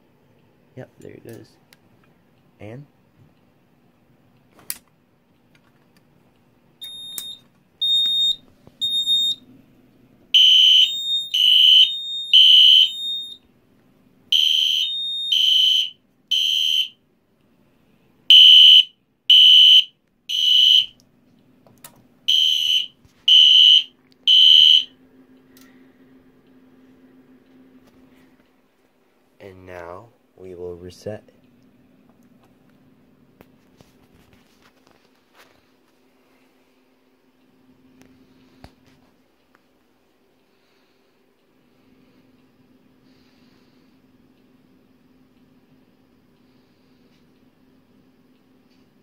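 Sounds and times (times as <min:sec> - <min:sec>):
fire alarm horn blasts: 0:06.8 - 0:09.4, 0:10.3 - 0:13.4, 0:14.3 - 0:17.0, 0:18.3 - 0:21.0, 0:22.3 - 0:24.9.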